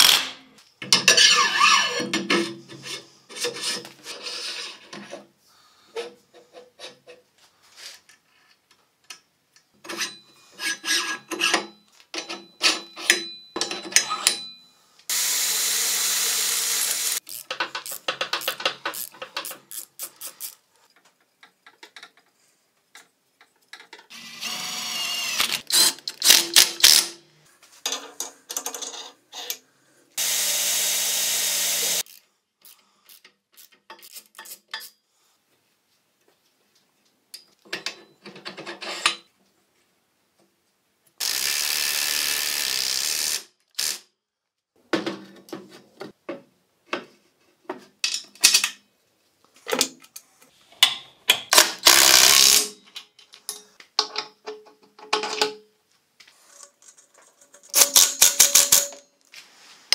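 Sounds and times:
power tool running: 15.1s - 17.2s, 30.2s - 32.0s
tools and steel parts clattering: 48.0s - 48.9s, 52.6s - 55.7s, 56.4s - 59.1s.

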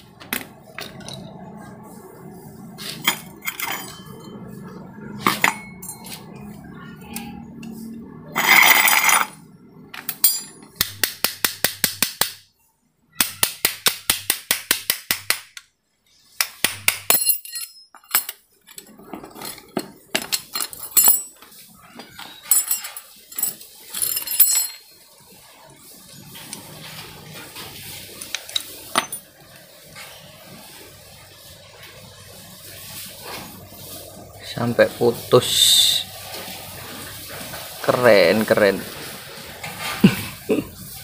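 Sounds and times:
metal clinks and knocks: 0.2s - 1.6s, 2.8s - 6.6s, 8.4s - 10.9s, 16.8s - 25.1s, 28.2s - 29.4s.

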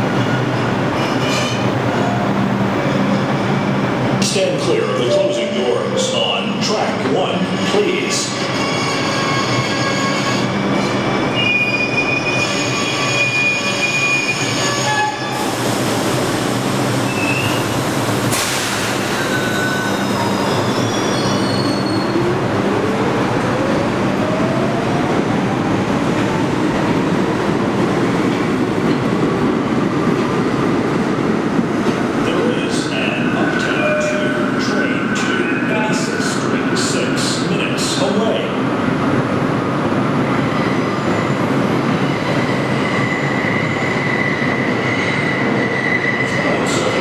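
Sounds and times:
subway train rolling roar: 0.0s - 47.0s
wheel squeals: 19.1s - 22.2s.

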